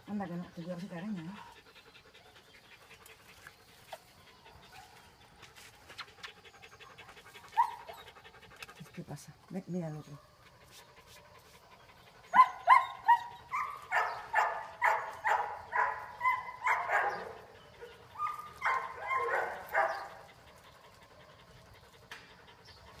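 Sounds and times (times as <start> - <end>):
dog yipping and whining: 7.6 - 8.1, 12.3 - 20.0.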